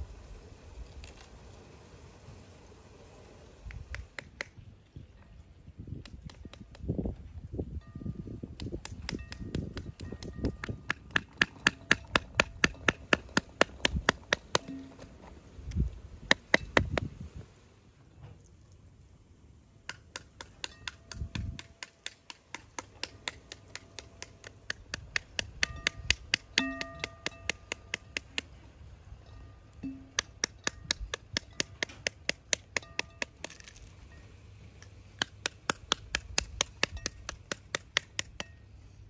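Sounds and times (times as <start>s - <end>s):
wooden stick rapping fruit rind: 8.6s - 15.0s, 19.9s - 28.6s, 29.9s - 33.9s, 34.8s - 38.6s.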